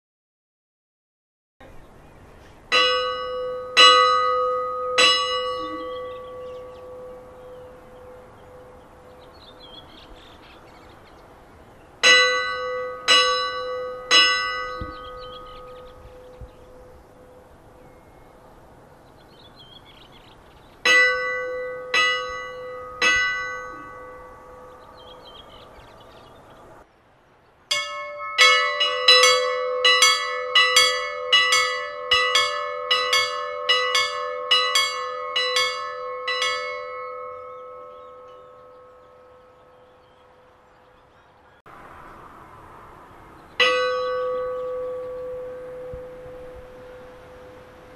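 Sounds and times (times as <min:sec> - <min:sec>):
church bell ringing: 0:02.7 - 0:10.0, 0:12.0 - 0:18.4, 0:20.8 - 0:26.3, 0:27.7 - 0:40.3, 0:43.6 - 0:47.9.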